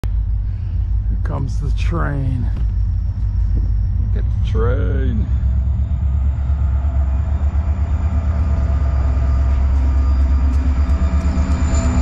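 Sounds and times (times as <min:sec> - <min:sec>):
faint steady tones: 0:00.0 - 0:12.0
locomotive engine rumble: 0:00.0 - 0:12.0.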